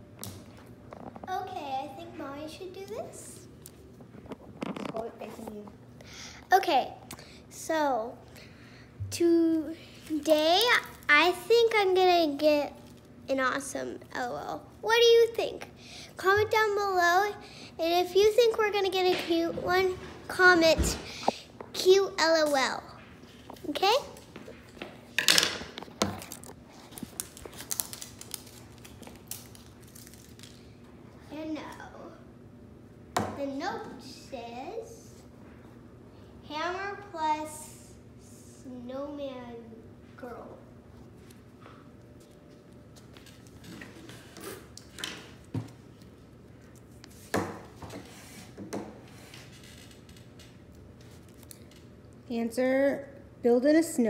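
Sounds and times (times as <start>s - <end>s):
plastic wrapping crackling: 25.8s - 30.7s
paper rustling: 26.0s - 30.6s.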